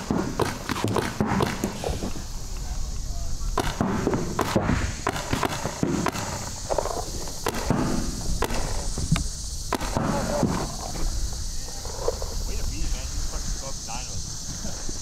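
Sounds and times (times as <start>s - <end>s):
paintball markers firing: 0.0s - 1.9s, 3.6s - 10.6s.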